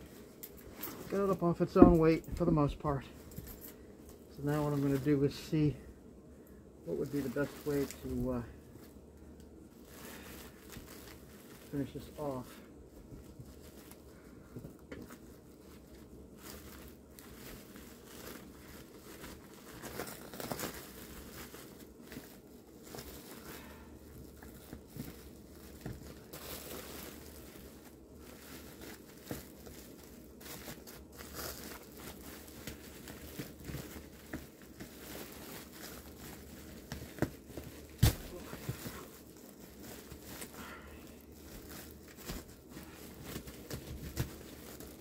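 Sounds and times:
foil duct crinkling: 0.0s - 45.0s.

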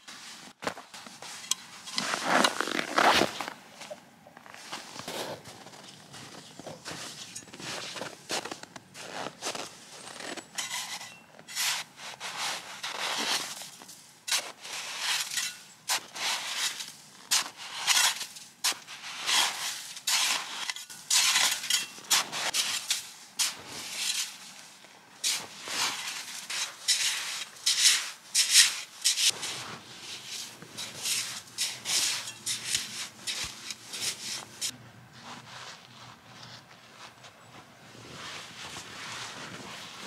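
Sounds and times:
rasping scrapes through snow: 6.8s - 13.7s, 14.4s - 24.5s, 25.3s - 36.7s, 37.9s - 40.0s.

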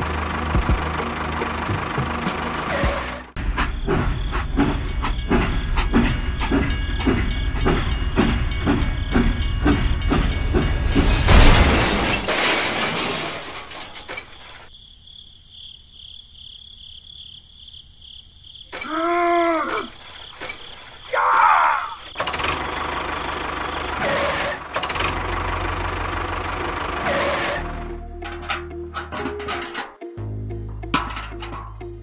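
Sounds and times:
toy train chugging: 1.1s - 11.1s
loud hissing: 18.7s - 22.1s.

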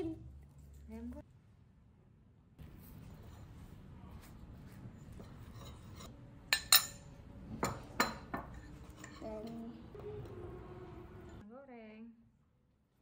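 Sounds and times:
ceramic bowl and utensil clinking: 5.2s - 10.4s.

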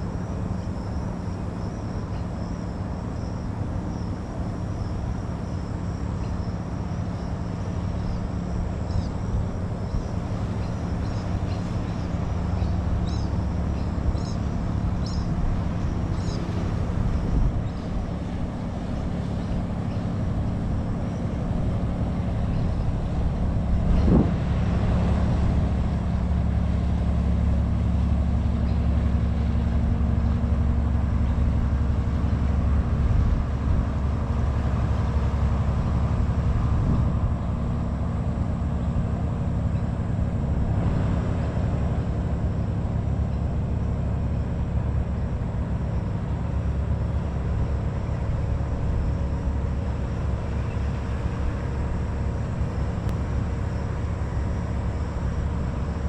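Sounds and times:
low engine drone: 0.0s - 56.0s.

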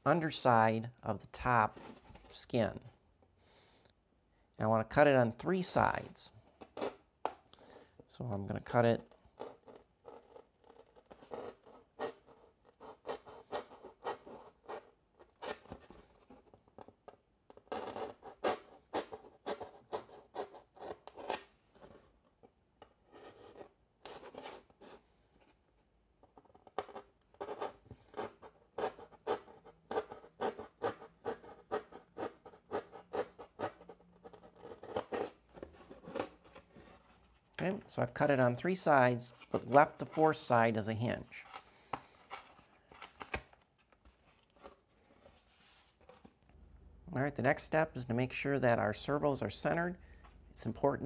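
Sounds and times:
knife cutting foam board: 26.7s - 37.0s, 39.3s - 40.5s.

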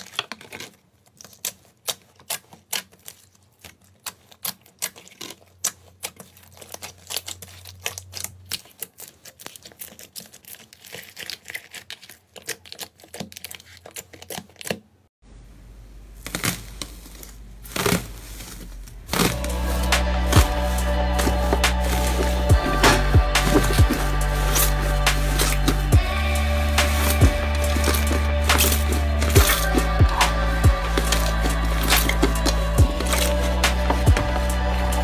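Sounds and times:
foil slime crinkling: 0.0s - 15.1s, 16.0s - 35.0s
low hum: 18.4s - 35.0s.

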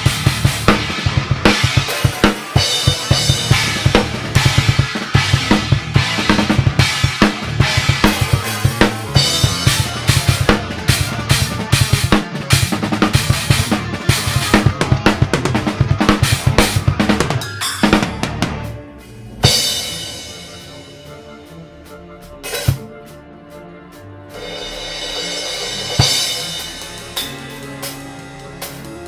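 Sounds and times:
acoustic drum kit playing fast: 0.0s - 18.8s, 19.4s - 21.6s, 22.3s - 22.9s, 24.3s - 29.0s.

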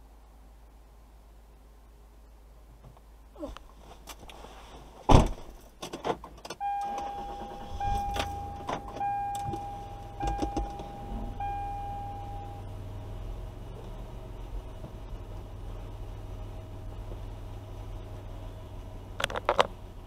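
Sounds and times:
low engine rumble: 6.5s - 20.0s
electronic warning tone: 6.6s - 12.7s.

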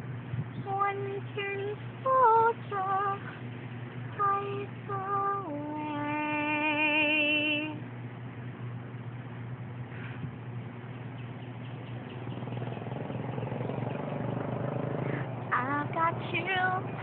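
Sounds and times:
girl singing unaccompanied: 0.6s - 3.4s, 4.1s - 7.8s, 15.3s - 17.0s.

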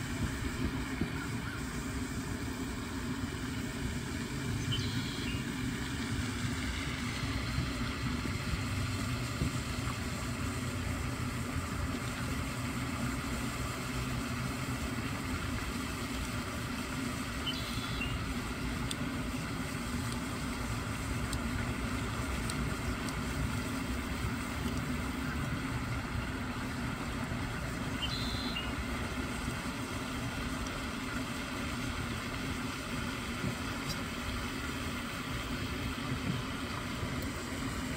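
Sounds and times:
faint high chirps: 28.0s - 28.7s.

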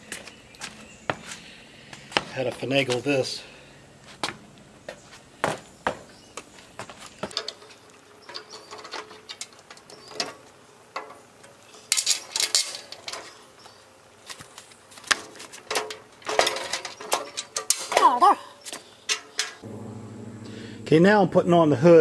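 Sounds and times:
metal parts clicking and clanking: 7.2s - 13.5s, 15.2s - 18.2s, 19.0s - 19.6s.

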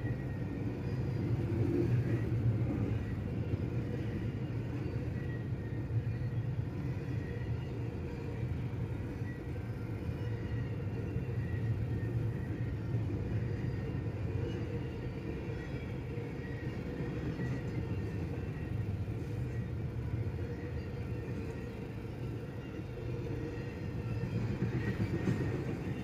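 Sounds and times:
freight train wheels rolling on rail: 0.0s - 26.0s.

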